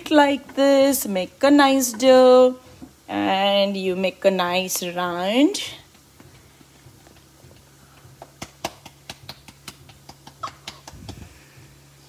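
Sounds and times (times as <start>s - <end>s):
hands slapping dough: 6.1s - 11.3s.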